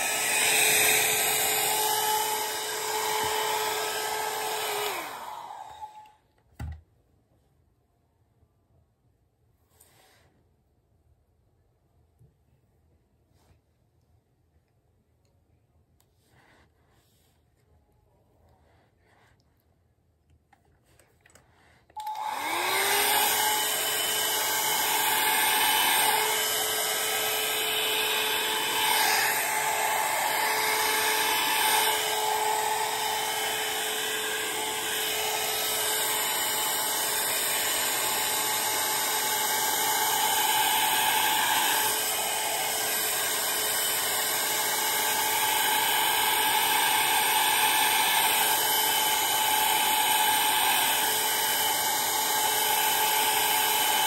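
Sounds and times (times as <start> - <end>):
hair dryer blowing: 0.0 - 6.2, 22.0 - 54.0.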